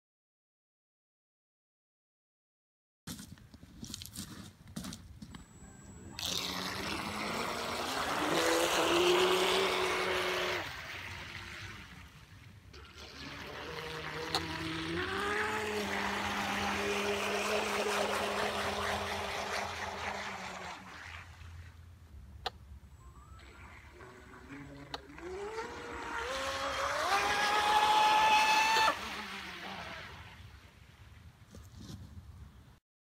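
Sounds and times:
electric motor whine: 5.3s - 12.1s, 12.8s - 21.4s, 23.0s - 30.5s
hull rushing on water: 5.5s - 31.4s.

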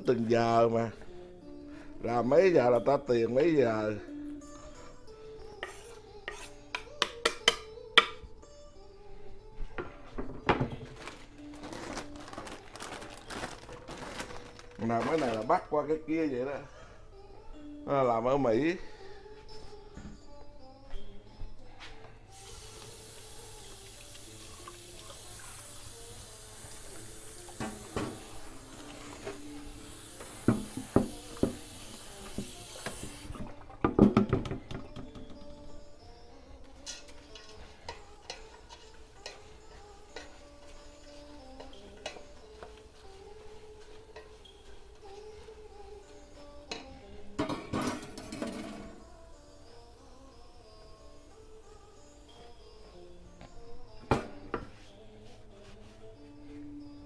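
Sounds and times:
utensils and dishes clattering: 26.8s - 35.6s, 36.8s - 42.8s, 46.7s - 49.1s
tap running into sink: 27.5s - 28.3s, 30.4s - 33.2s
things clattering in sink: 47.4s - 49.0s.

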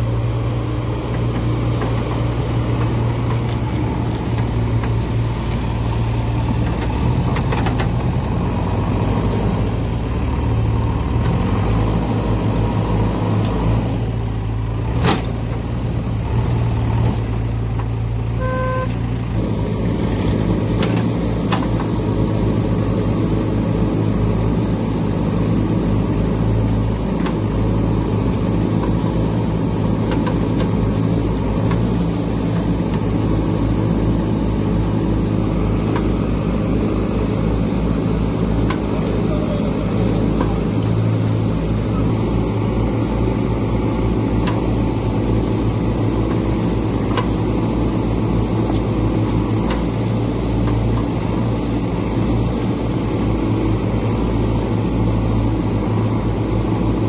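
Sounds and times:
backhoe digging soil: 0.0s - 57.0s
diesel engine running: 0.0s - 57.0s
short beep: 18.4s - 19.0s.

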